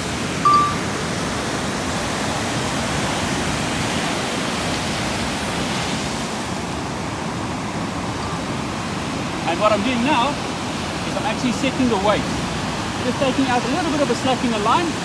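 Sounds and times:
surf breaking on shore: 0.0 - 15.0.

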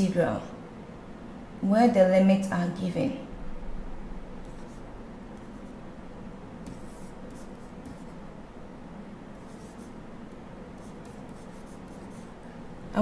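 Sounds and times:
faint background hum: 0.0 - 13.0
stylus scratching on screen: 4.4 - 5.8, 6.6 - 8.3, 9.4 - 10.0, 10.8 - 12.4.

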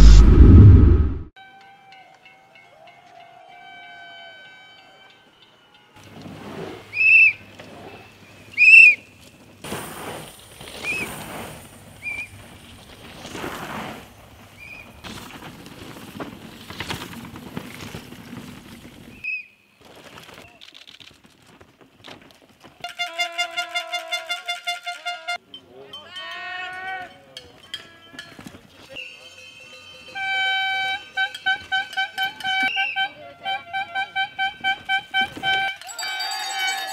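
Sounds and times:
mountain bikes rushing past: 6.0 - 25.1.

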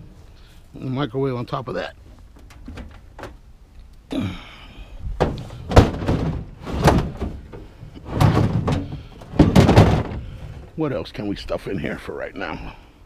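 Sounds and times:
knocks and thumps on truck bed: 2.4 - 3.4, 5.1 - 10.8
metal case scraping: 5.2 - 10.8.

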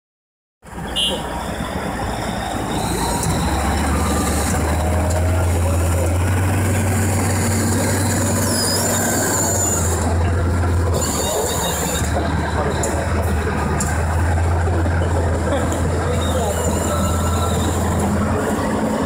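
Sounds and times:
bulldozer diesel engine droning: 0.6 - 19.0
high squealing: 1.2 - 13.2, 15.9 - 19.0.

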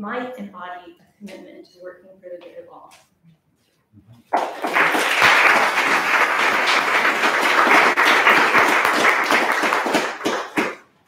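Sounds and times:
audience applauding: 4.3 - 10.9.

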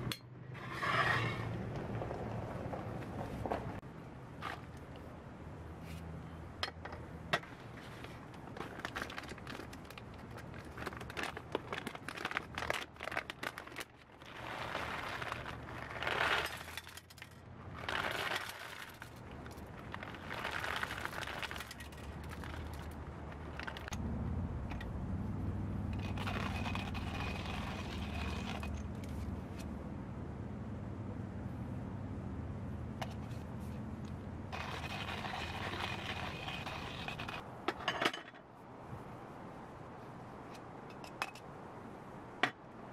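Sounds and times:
clicks and rustles: 5.9 - 24.0
foil bag crinkling: 8.6 - 17.0, 17.8 - 23.9
steady low rumble: 22.0 - 37.6.

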